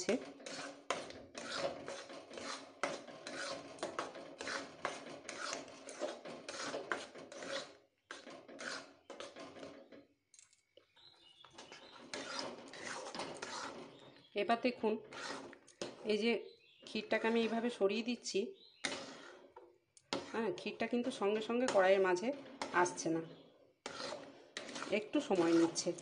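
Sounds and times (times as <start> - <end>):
metal spatula scraping pan: 0.0 - 10.0, 11.6 - 26.0.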